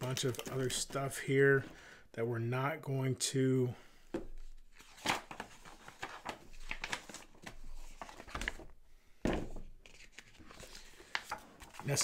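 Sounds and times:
cards and cardboard rustling: 0.0s - 1.1s, 4.1s - 8.7s, 9.3s - 12.0s.

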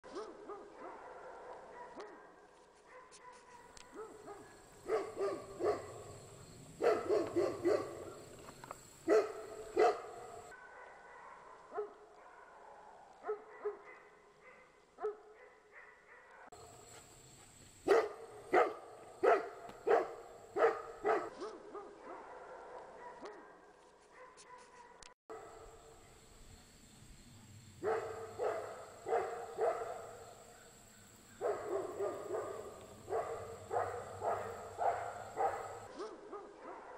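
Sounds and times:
dog barking: 0.0s - 8.3s, 9.0s - 16.6s, 17.8s - 26.3s, 27.8s - 30.8s, 31.4s - 36.9s.

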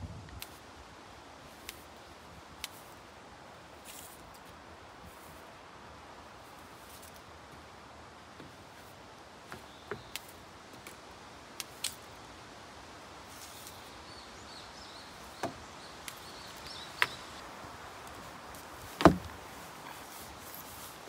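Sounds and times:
broom tapping wooden deck: 8.3s - 8.9s, 9.5s - 11.0s, 15.2s - 17.4s, 18.1s - 19.6s
heavy thump: 18.9s - 19.4s.

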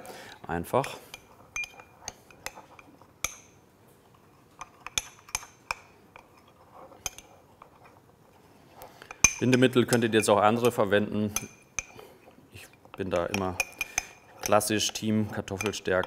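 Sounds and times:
whisk clinking against glass bowl: 1.1s - 2.5s, 13.2s - 16.0s.

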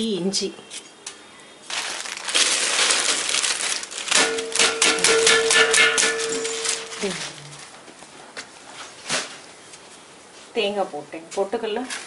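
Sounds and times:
ingredients rustling and crunching: 1.6s - 8.1s
clicks against metal drum: 4.2s - 7.0s.

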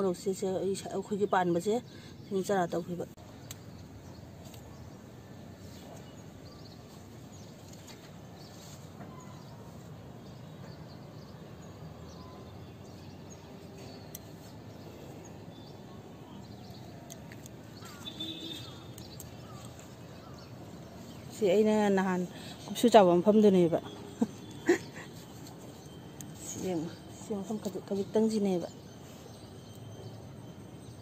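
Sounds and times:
bird chirps: 3.3s - 22.6s.

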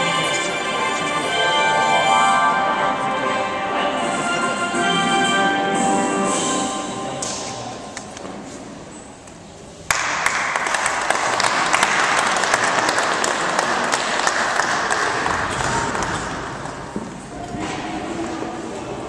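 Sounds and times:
audience applauding: 9.9s - 16.9s.

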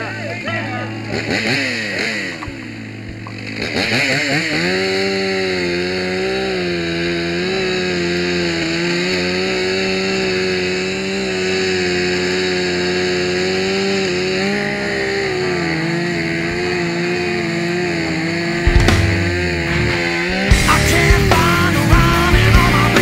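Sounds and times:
chainsaw cutting at full throttle: 0.0s - 23.0s
loud thump: 18.6s - 20.6s.

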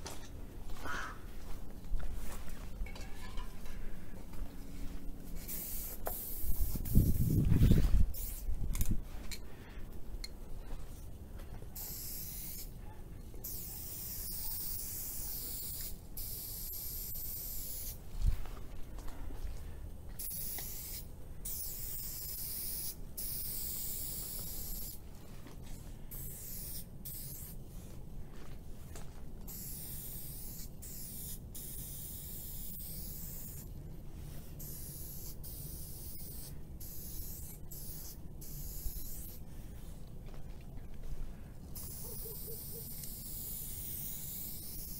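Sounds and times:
spray paint cans hissing: 5.3s - 9.4s, 11.7s - 12.8s, 13.4s - 18.0s, 20.2s - 25.0s, 26.1s - 27.6s, 29.4s - 39.4s, 41.7s - 44.9s.

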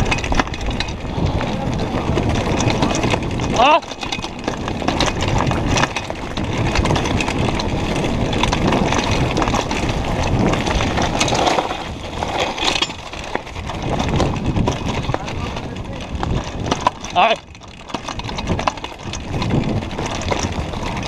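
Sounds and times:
bike frame rattling: 0.0s - 21.0s
tyres crunching on loose stones: 0.0s - 21.0s
wind rushing on microphone: 0.0s - 21.0s.

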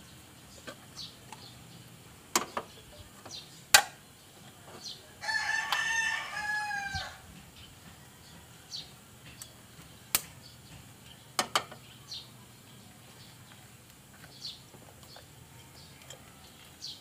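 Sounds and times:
rooster crowing: 5.2s - 8.9s.

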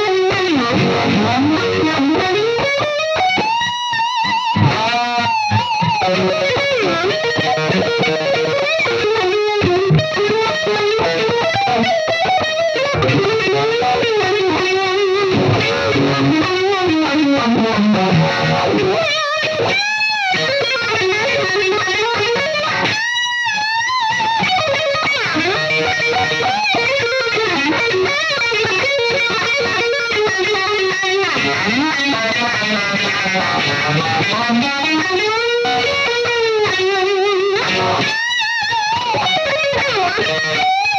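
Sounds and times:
distorted electric guitar: 0.0s - 40.9s.

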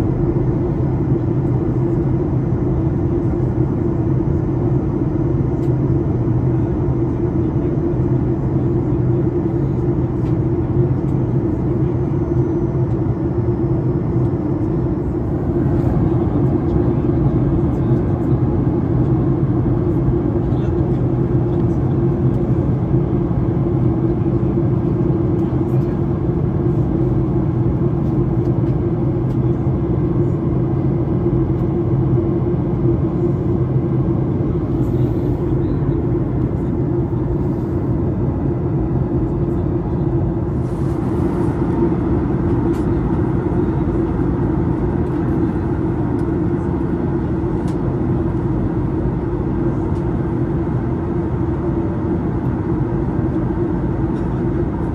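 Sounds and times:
airplane cabin drone: 0.0s - 54.9s.

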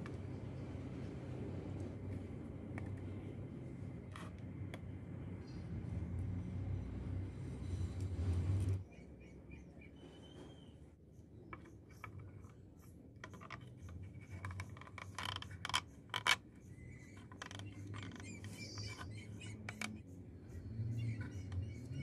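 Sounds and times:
plastic scraping and tapping: 11.5s - 16.4s, 17.0s - 20.0s.

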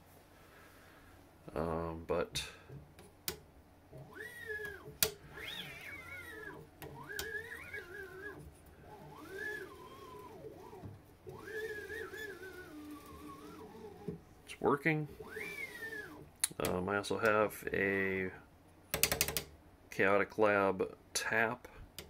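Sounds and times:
stepper motor whine: 4.0s - 14.2s, 15.1s - 16.3s.

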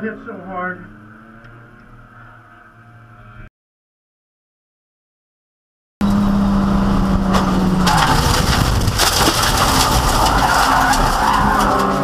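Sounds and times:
race car engine: 0.0s - 3.5s, 6.0s - 12.0s
car crunching and rattling: 6.0s - 12.0s.

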